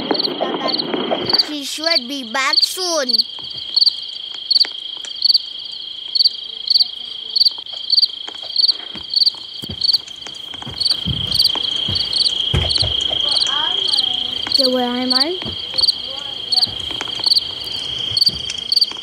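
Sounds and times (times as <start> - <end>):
crickets trilling: 0.0 - 19.0
low thuds: 9.0 - 13.4.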